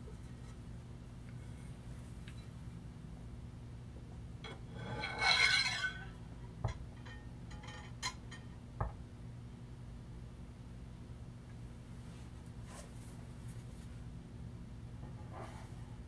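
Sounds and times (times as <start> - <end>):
metal platter scraping: 4.5 - 6.2.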